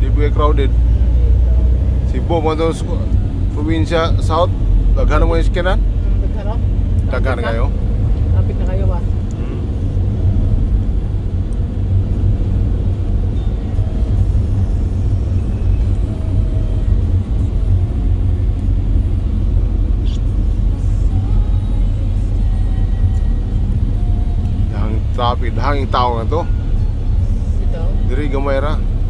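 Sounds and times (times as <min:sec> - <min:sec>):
road noise: 0:00.0 - 0:29.0
van engine rumble: 0:00.0 - 0:29.0.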